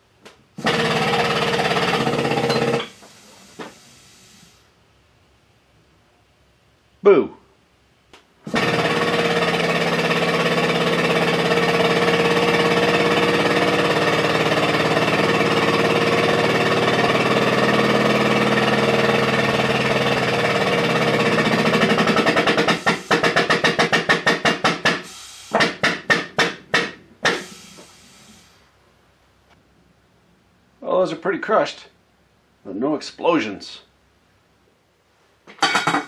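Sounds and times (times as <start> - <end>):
hydraulic pump running: 0.6 - 4.2, 8.4 - 28.5.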